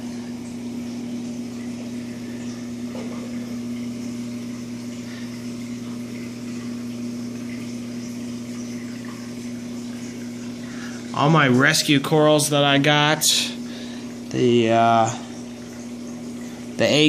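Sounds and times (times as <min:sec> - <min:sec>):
aquarium pumps humming: 0:00.0 - 0:17.0
water hissing: 0:01.8 - 0:11.3.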